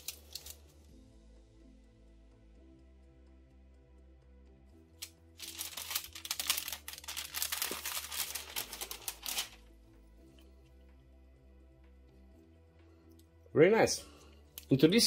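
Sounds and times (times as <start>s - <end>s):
baking paper rustling: 0.0s - 0.6s, 5.4s - 9.6s
soft background music: 0.0s - 15.0s.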